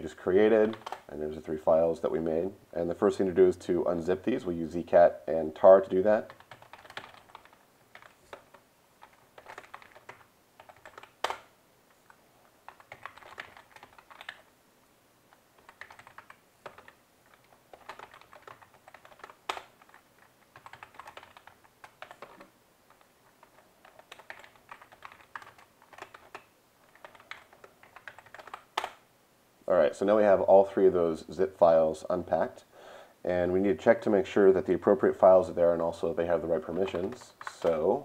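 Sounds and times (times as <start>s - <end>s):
typing on computer keyboard: 0.6s - 1.1s, 6.2s - 11.5s, 12.7s - 14.5s, 15.6s - 29.0s.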